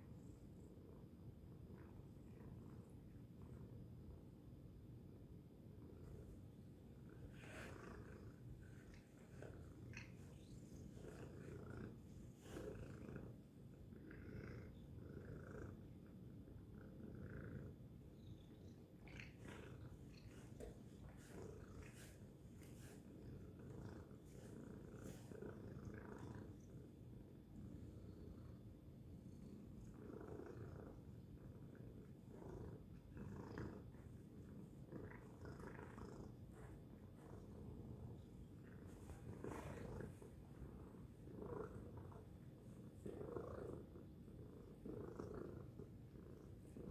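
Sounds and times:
cat purring: 0.0 - 46.9.

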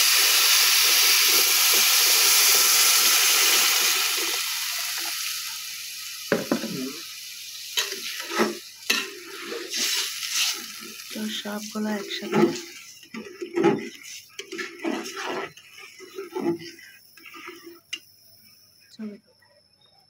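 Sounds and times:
water poured into a pot: 0.0 - 18.0
food sizzling in oil: 0.0 - 18.6
spoon knocking against a pot: 6.3 - 6.7.

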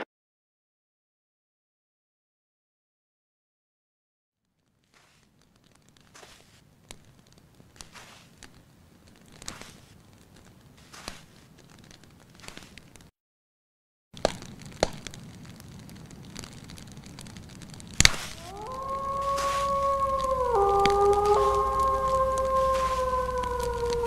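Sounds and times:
small crackles: 4.4 - 13.1, 14.2 - 24.0
footsteps crunching through dry grass: 5.0 - 8.6, 9.4 - 10.1, 10.7 - 12.9, 18.0 - 23.5
sharp loud snaps: 14.2 - 15.2, 17.8 - 24.0.

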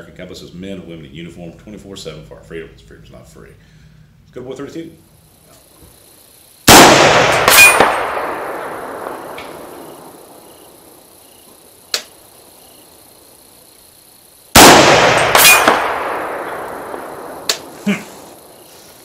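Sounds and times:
rifle shots echoing: 6.7 - 10.4, 14.5 - 17.8
sharp crack: 6.7 - 10.9, 11.9 - 12.2, 14.5 - 18.6.

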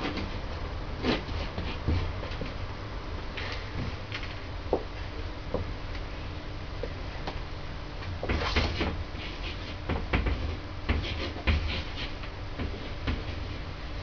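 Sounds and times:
marker pen scratching on wall: 8.2 - 13.6.

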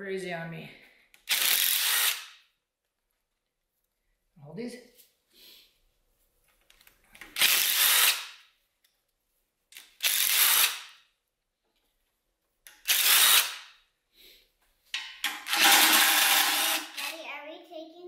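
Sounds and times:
impact driver spinning bolts: 15.3 - 17.1.

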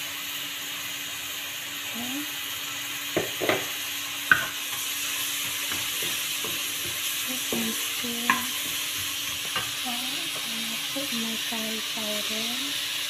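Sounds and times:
onion sizzling in hot oil: 0.0 - 13.0
wooden spatula knocking on pan: 3.2 - 3.7, 4.3 - 4.6, 5.4 - 10.5.

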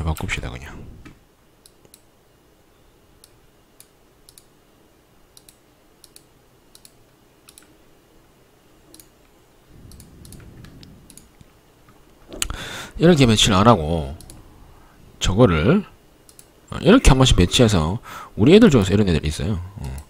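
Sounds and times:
computer mouse clicking: 1.6 - 2.1, 3.2 - 4.5, 5.3 - 7.8, 8.9 - 12.5, 14.1 - 14.4, 16.3 - 16.5
faint low rumble: 9.6 - 16.1.

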